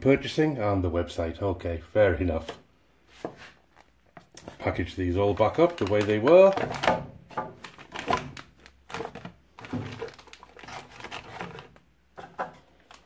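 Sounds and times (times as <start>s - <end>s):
plastic bags crinkling: 3.7s - 11.9s, 12.7s - 13.0s.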